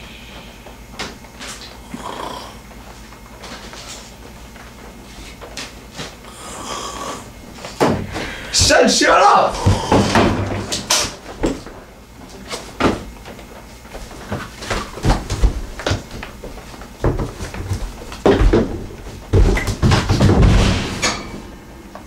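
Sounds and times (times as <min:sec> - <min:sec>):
knocks and thumps on couch and floor: 0:07.5 - 0:11.8, 0:12.5 - 0:21.2.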